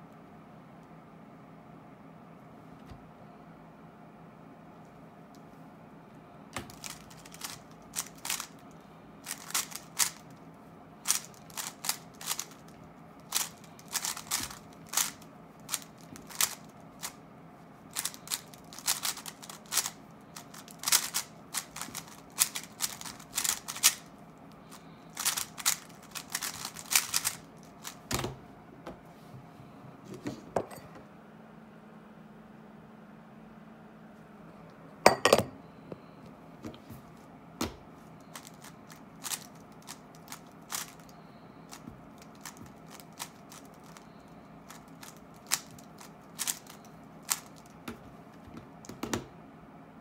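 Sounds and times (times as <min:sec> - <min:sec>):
puzzle cube clacking: 0:06.6 - 0:08.6, 0:09.2 - 0:10.2, 0:11.0 - 0:17.2, 0:18.0 - 0:24.1, 0:25.1 - 0:28.0, 0:38.3 - 0:41.1, 0:44.7 - 0:47.6.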